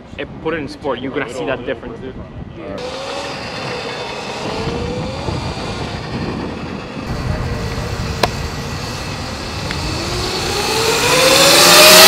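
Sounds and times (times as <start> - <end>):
electric dirt bike motor whine: 2.8 - 12.0
low rumble: 4.7 - 11.7.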